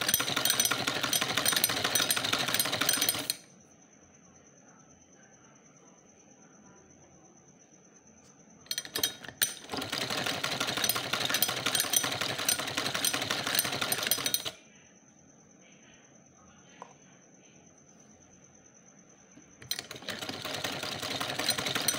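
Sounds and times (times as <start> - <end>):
sewing machine stitching: 0.0 - 3.4, 8.7 - 14.6, 19.6 - 21.9.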